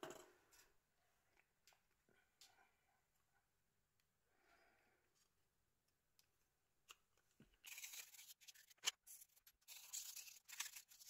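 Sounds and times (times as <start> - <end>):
small parts scraping: 7.6 - 11.0.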